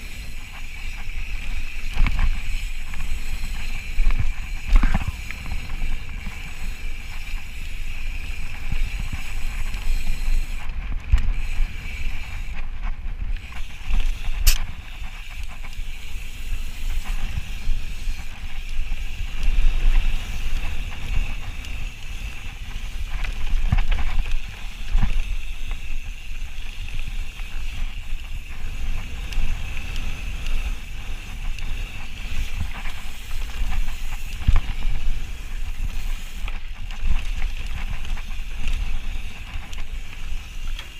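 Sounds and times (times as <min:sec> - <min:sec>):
bike tyres and frame rattling: 0:00.0 - 0:40.9
wind rushing on microphone: 0:00.0 - 0:40.9.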